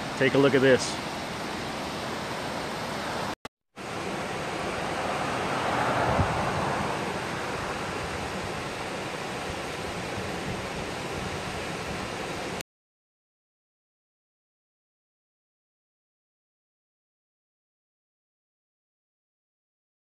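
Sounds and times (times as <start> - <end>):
mountain stream splashing over rocks: 0.0 - 12.6.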